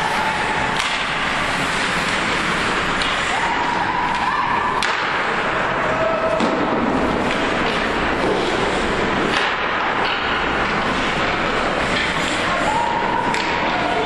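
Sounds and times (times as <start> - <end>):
hockey stick and puck clacks: 0.0 - 14.0
rink and crowd noise: 0.0 - 14.0
crowd shouting: 12.5 - 14.0.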